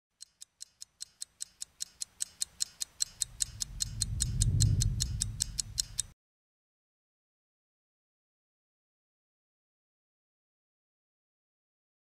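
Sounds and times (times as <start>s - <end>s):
rapid clock ticking: 0.1s - 6.2s
low rumble: 3.2s - 6.1s.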